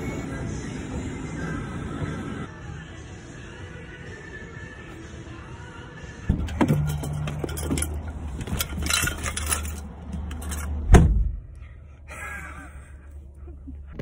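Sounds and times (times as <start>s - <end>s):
keys clinking and jangling: 6.3s - 10.8s.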